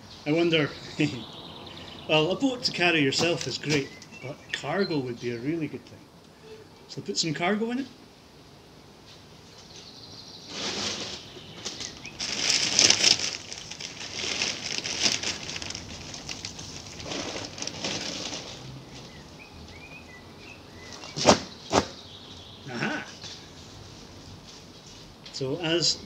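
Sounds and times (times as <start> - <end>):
plastic bag rustling: 10.5 - 19.2.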